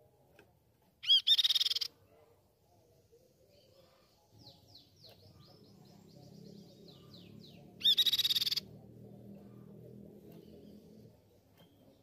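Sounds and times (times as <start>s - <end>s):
bird whistled notes: 7.8s - 8.6s.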